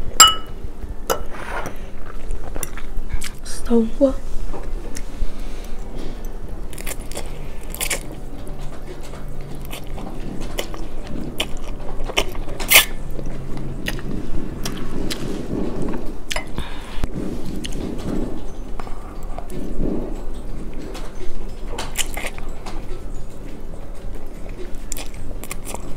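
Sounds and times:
person chewing and slurping noodles: 4.7 - 20.1, 21.9 - 25.9.

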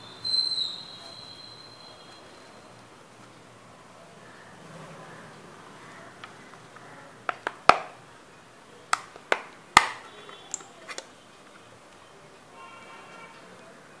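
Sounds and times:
plastic snap clips clicking: 7.2 - 7.9, 8.9 - 11.1.

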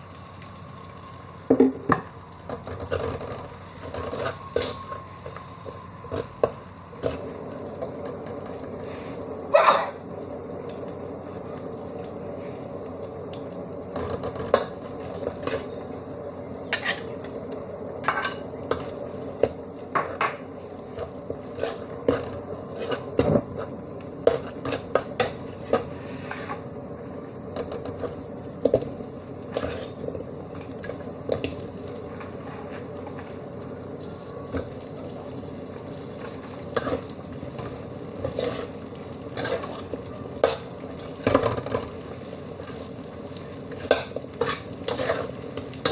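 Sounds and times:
metal spatula scraping a wok: 43.8 - 45.3.

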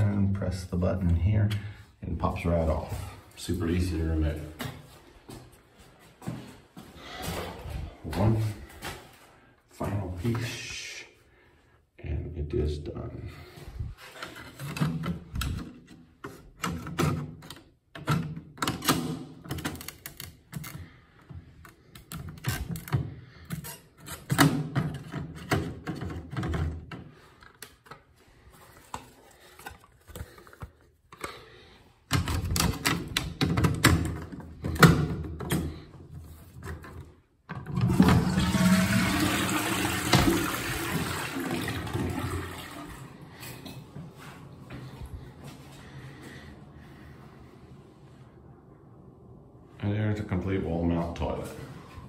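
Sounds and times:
toilet flushing: 37.6 - 43.4.

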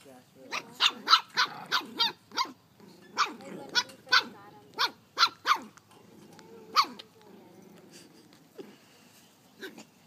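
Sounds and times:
dogs barking: 0.5 - 2.6, 3.2 - 5.8, 6.7 - 7.0
dogs growling: 0.6 - 2.2, 5.7 - 8.8.

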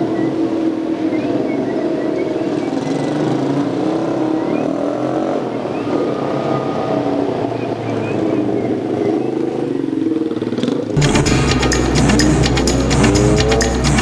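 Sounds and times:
motorcycle engine running: 8.0 - 14.0.

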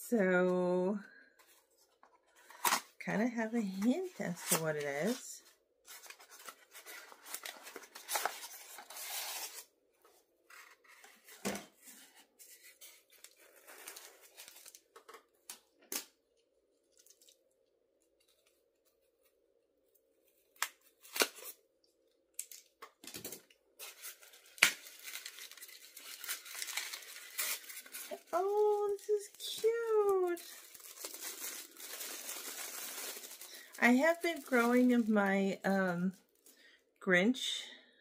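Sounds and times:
gift-wrap paper tearing and rustling: 3.8 - 9.7, 10.5 - 14.9, 20.6 - 21.6, 23.8 - 35.3.

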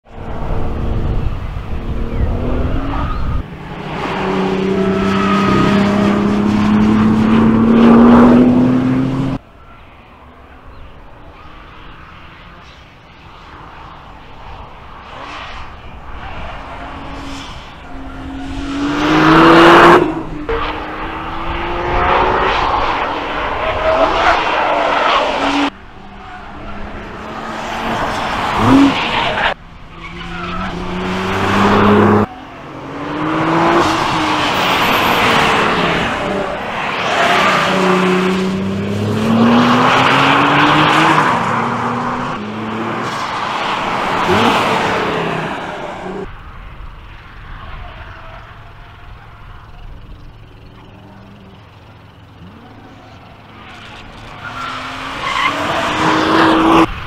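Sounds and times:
race car engine passing: 0.2 - 9.4, 16.5 - 46.3, 50.5 - 57.0.

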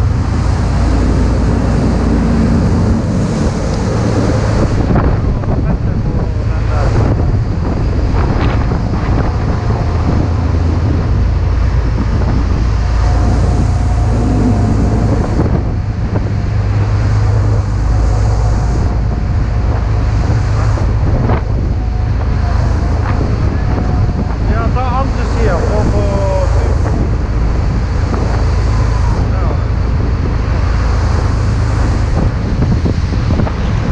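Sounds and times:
ship engines droning: 0.0 - 33.9
waves and churning water: 0.0 - 33.9
wind buffeting microphone: 0.0 - 33.9.

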